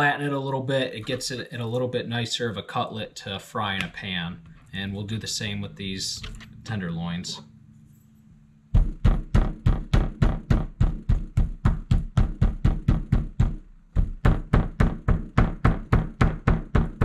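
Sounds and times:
meat mallet pounding: 0:08.7 - 0:17.0.

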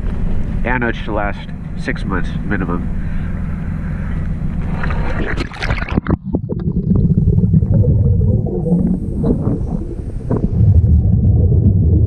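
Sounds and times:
muffled underwater rumble: 0:00.0 - 0:12.0
regulator gurgling: 0:04.6 - 0:12.0
water splashing: 0:04.6 - 0:12.0.

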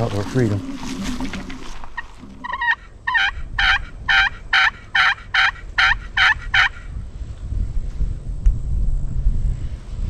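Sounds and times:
turkey yelps: 0:02.0 - 0:06.8.

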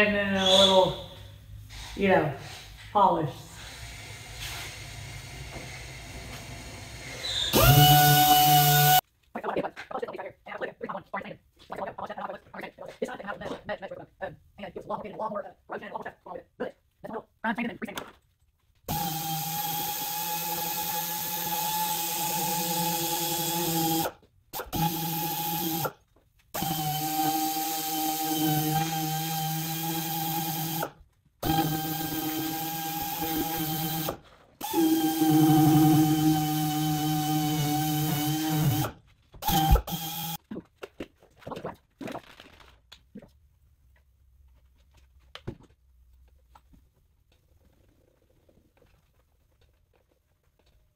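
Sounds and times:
air polishing tool whining: 0:03.5 - 0:09.0, 0:31.4 - 0:40.4.

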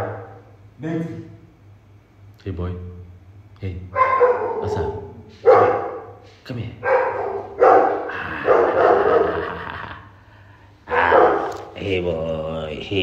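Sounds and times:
dog howling barks: 0:00.0 - 0:00.5, 0:03.9 - 0:06.2, 0:06.8 - 0:09.4, 0:10.9 - 0:11.8.

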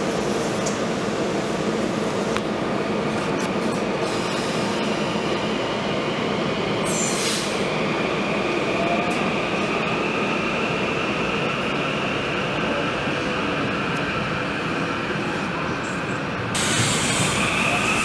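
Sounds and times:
train running and wheel noise: 0:00.0 - 0:18.0
air hiss: 0:16.6 - 0:18.0.

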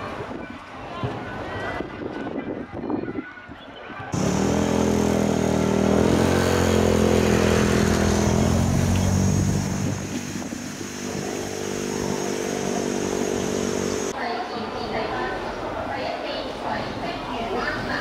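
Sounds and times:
engine running: 0:04.2 - 0:14.1.

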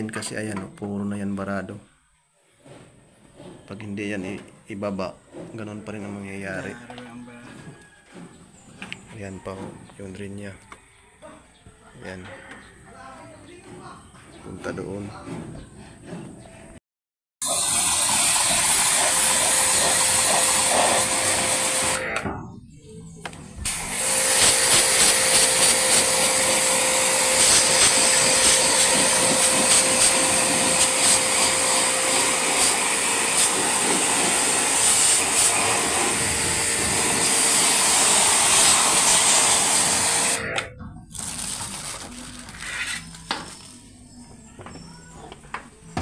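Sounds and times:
water jet hissing on metal fins: 0:17.4 - 0:22.0, 0:23.8 - 0:40.4
pressure washer whining: 0:17.4 - 0:22.3, 0:23.6 - 0:40.7
handling noises: 0:40.9 - 0:46.0.

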